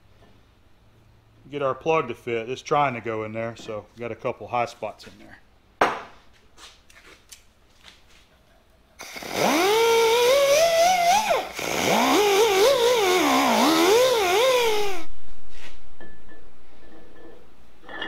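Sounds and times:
drum sander whining: 9.0s - 15.1s.

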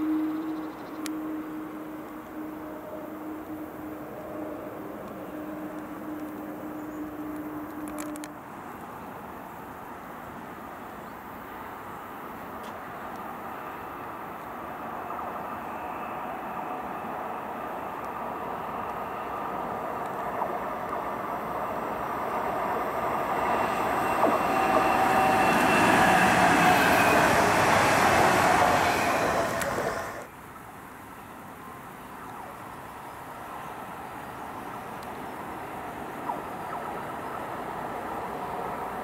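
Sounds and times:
train rail and wheel noise: 0.0s - 30.4s, 33.2s - 39.0s
steady background noise: 0.0s - 39.0s
faint train motor whine: 13.3s - 30.3s.

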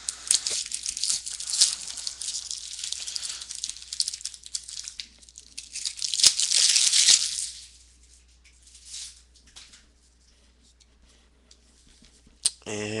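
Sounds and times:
foil wrapper crinkling and tearing: 0.0s - 9.8s.

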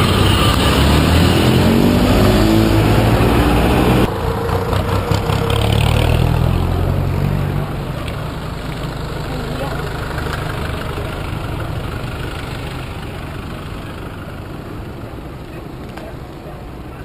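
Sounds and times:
motorcycle engine accelerating: 0.0s - 8.6s
road traffic engines rumbling: 0.0s - 17.0s.

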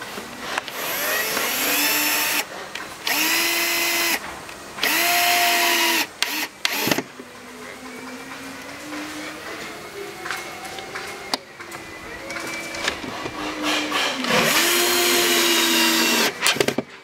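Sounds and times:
drill motor whining: 0.7s - 4.2s, 4.8s - 7.0s, 12.4s - 16.8s.

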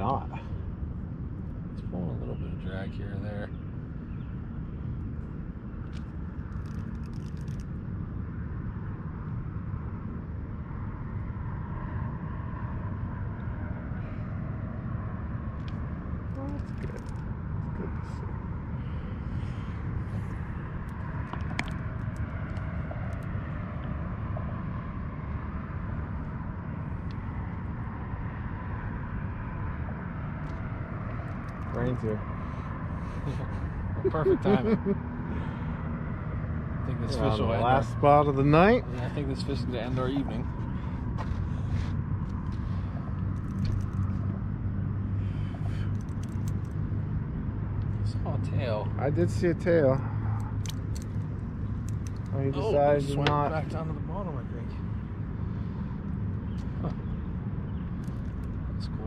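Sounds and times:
low outdoor rumble: 0.0s - 59.0s
small sharp clicks: 5.8s - 7.8s, 43.2s - 44.3s, 50.4s - 52.3s.

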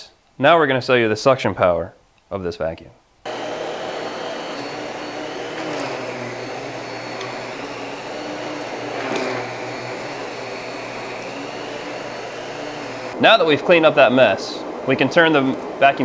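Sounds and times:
vacuum cleaner running: 3.3s - 13.6s.

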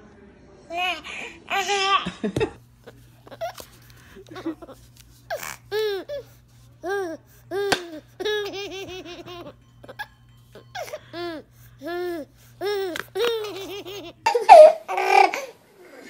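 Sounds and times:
baby giggling: 6.9s - 15.6s.

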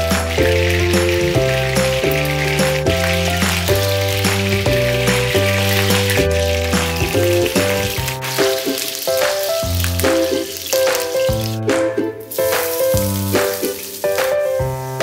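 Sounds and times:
music with plucked melody and bass: 0.0s - 8.8s
food sizzling in frying pan: 0.0s - 11.6s, 12.3s - 15.0s.

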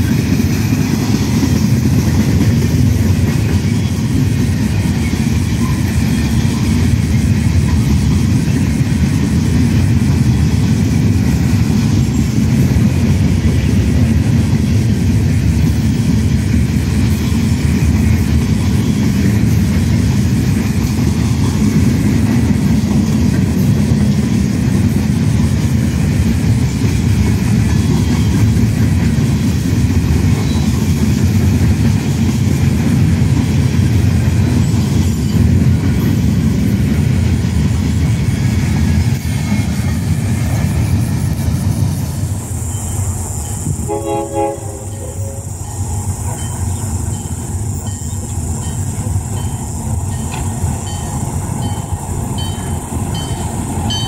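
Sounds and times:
freight train wheels rumbling: 0.0s - 54.0s
rail clickety-clack: 0.0s - 54.0s
locomotive horn blast: 43.7s - 45.7s.

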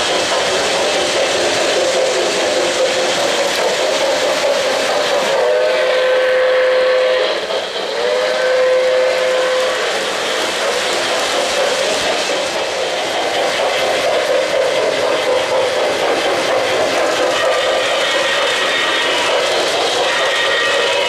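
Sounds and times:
model train wheels rumbling: 0.0s - 21.0s
steam whistle blasts: 5.2s - 10.2s, 17.4s - 21.0s.

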